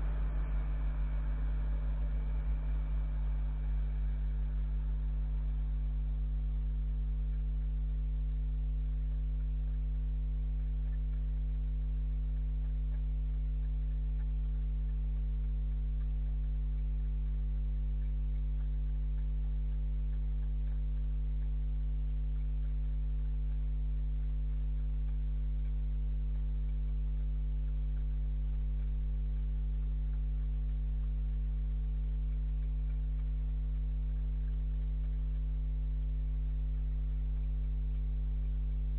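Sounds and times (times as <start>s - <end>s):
faint hiss: 0.0s - 8.0s
electrical hum: 0.0s - 38.9s.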